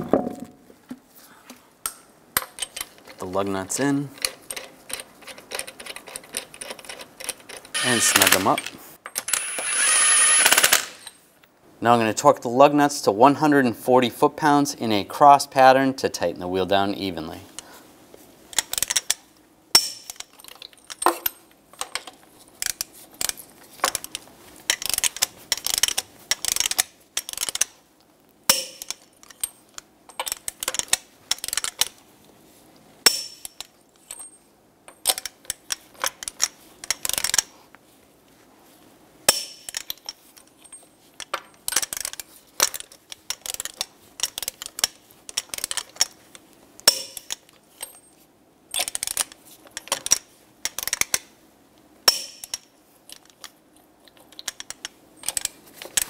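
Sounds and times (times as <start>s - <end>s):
torque wrench ratcheting: 7.8s - 11.1s.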